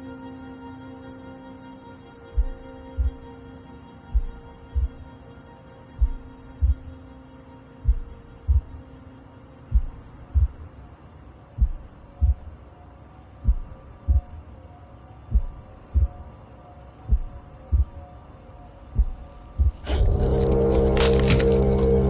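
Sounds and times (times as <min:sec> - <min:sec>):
faint steady drone: 0:00.0 - 0:22.0
low double thumps: 0:02.4 - 0:03.2, 0:04.1 - 0:05.1, 0:06.0 - 0:06.9, 0:07.8 - 0:08.8, 0:09.7 - 0:10.7, 0:11.6 - 0:12.5, 0:13.4 - 0:14.4, 0:15.3 - 0:16.2, 0:17.1 - 0:18.0, 0:19.0 - 0:22.0.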